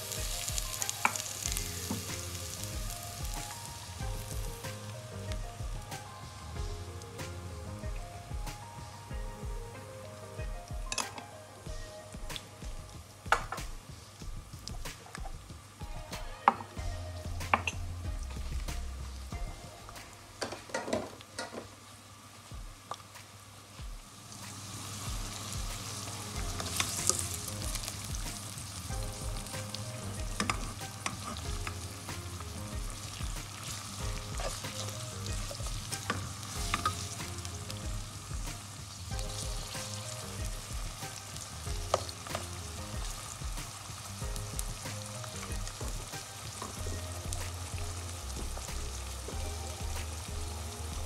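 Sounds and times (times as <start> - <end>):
onions sizzling in oil: 0.0 - 51.0.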